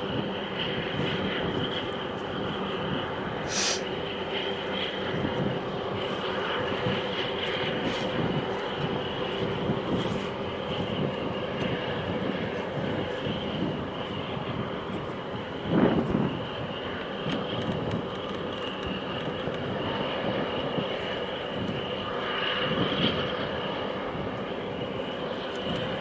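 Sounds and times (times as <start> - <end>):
constant hum: 0.0 - 26.0
ship engine drone: 0.0 - 26.0
short hiss: 3.5 - 3.8.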